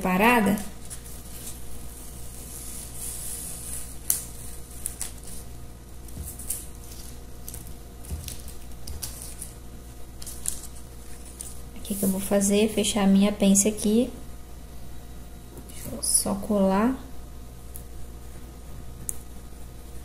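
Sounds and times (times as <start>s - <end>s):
paper rustling and crinkling: 0.4s - 12.4s
sharp paper crackles: 0.5s - 5.5s, 6.1s - 9.6s, 10.2s - 12.2s.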